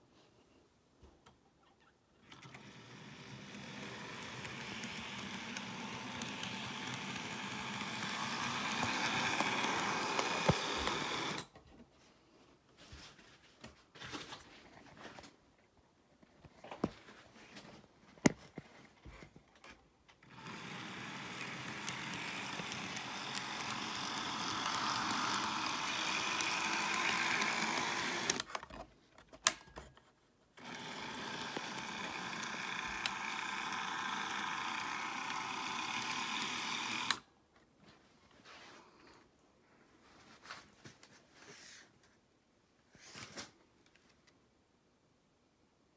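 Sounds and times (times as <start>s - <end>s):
model locomotives whirring: 2.3s - 11.5s, 20.2s - 28.5s, 30.6s - 37.2s.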